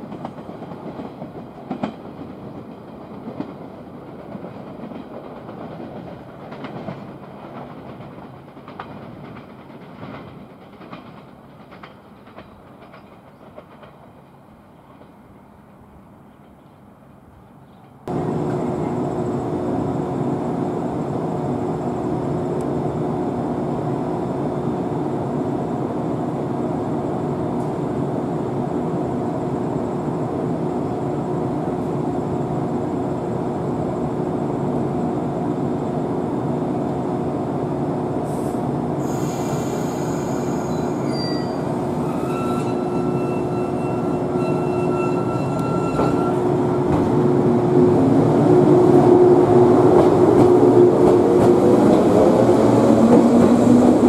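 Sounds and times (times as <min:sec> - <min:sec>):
train wheels rumbling: 0:00.0 - 0:54.0
brake and wheel squeal: 0:39.1 - 0:46.4.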